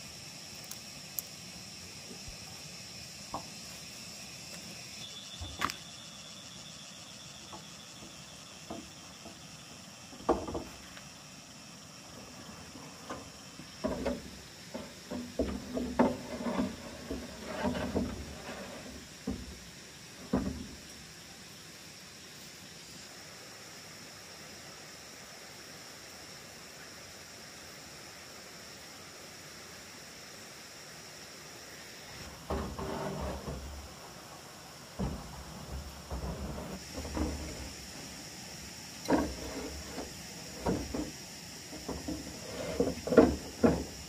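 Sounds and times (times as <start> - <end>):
insects chirring: 0.0 - 44.0
clattering knocks: 35.0 - 37.8, 39.1 - 44.0.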